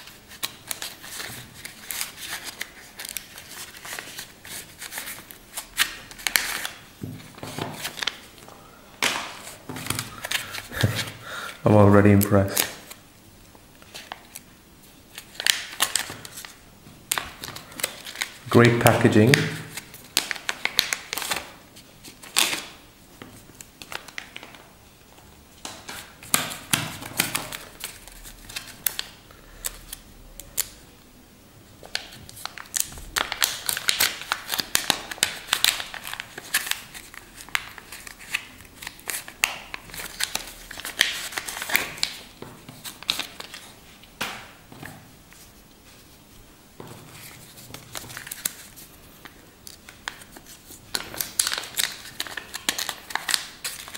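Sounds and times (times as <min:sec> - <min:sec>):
plastic packets crinkling: 0:15.1 - 0:22.8, 0:31.8 - 0:43.8, 0:47.1 - 0:53.9.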